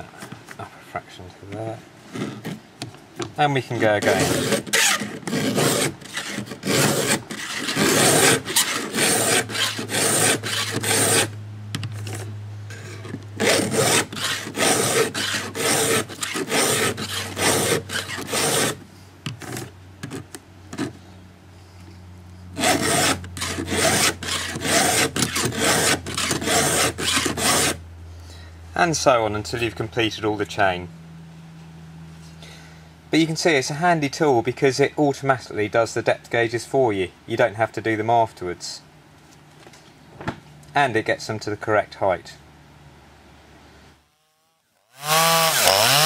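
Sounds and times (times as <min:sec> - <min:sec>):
file rasping on saw chain: 0:04.0 - 0:11.4, 0:12.1 - 0:18.8, 0:22.6 - 0:27.8, 0:45.0 - 0:46.0.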